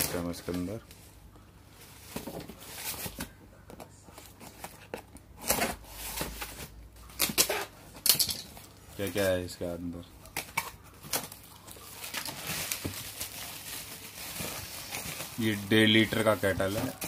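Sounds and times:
packaging rustling: 10.2 - 17.0.

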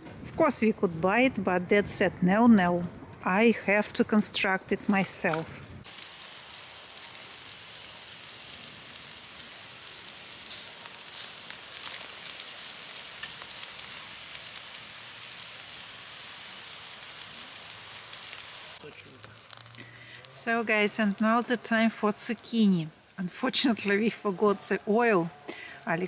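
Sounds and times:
sausages sizzling on a grill: 5.8 - 26.0
fat popping: 18.8 - 20.4.

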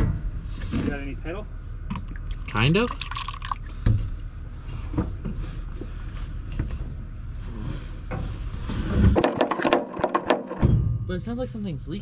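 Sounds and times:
louder clatter: 9.2 - 10.6.

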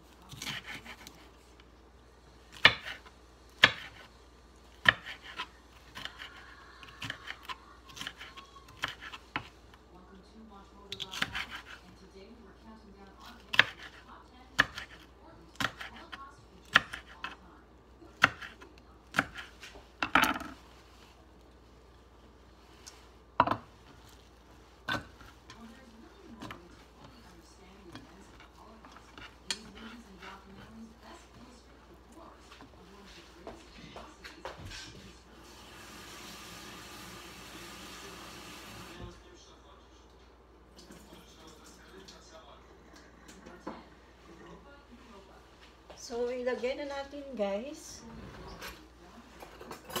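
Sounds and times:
soft rustle: 20.6 - 30.8.

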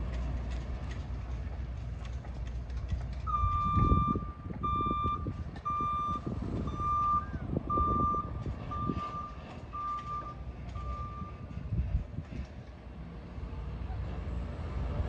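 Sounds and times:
low rumbling: 0.0 - 15.0
truck reverse alarm beeping: 3.3 - 11.6.

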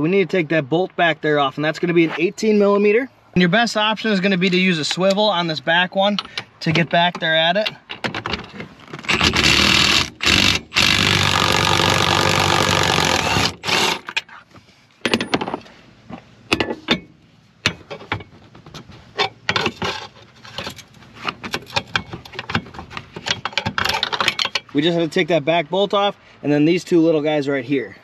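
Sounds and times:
hand tools clanking on metal: 19.2 - 24.8.

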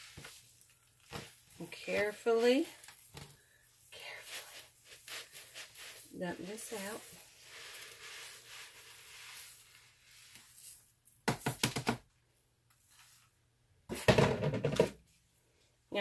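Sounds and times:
bath salts pouring hiss: 3.5 - 11.0.

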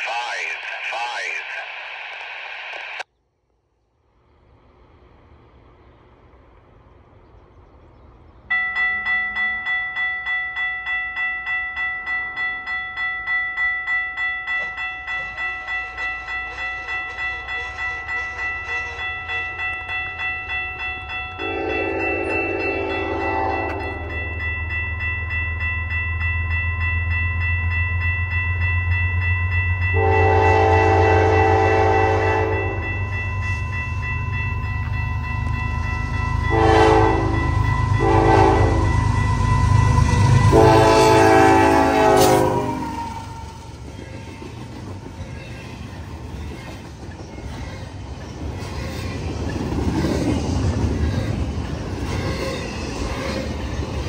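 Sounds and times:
locomotive engine rumble: 4.1 - 9.2
locomotive air horn: 21.4 - 24.1, 30.0 - 32.8, 36.5 - 43.4
train wheels clattering on rails: 32.6 - 54.0.

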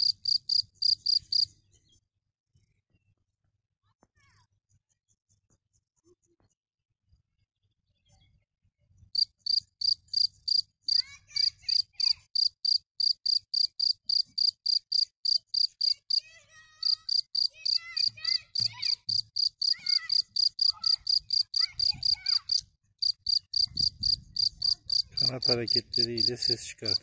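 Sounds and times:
cricket chirping: 0.0 - 1.4, 9.2 - 11.0, 11.7 - 16.0, 16.8 - 17.8, 19.1 - 27.0.

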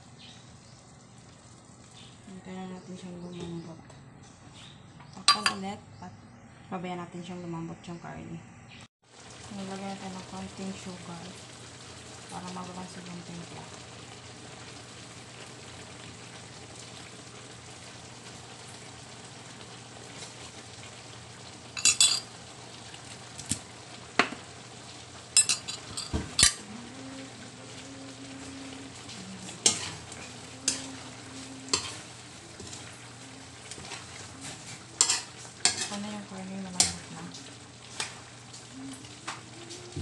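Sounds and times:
meat sizzling in a wok: 9.0 - 40.0
metal tongs scraping a wok: 29.4 - 32.8, 33.6 - 36.1.

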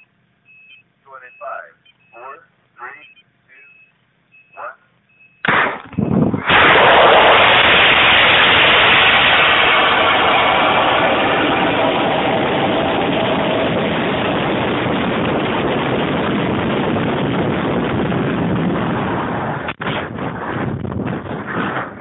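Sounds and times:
air rushing past rocket: 5.5 - 22.0.

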